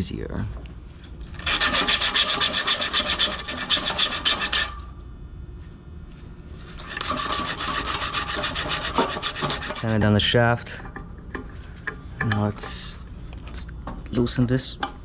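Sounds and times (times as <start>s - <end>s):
sandpaper rasping on metal shaft: 1.4s - 4.8s, 6.8s - 9.9s.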